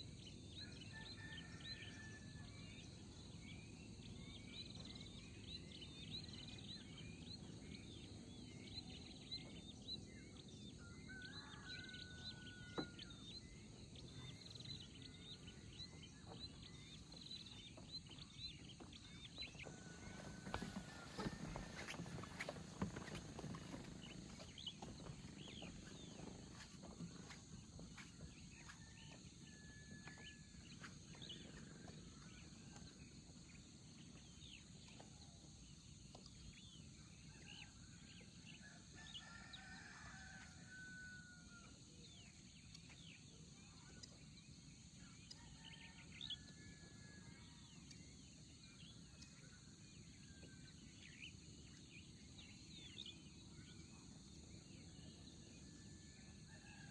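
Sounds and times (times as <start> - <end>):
distant bird calls: 11.4 - 29.1.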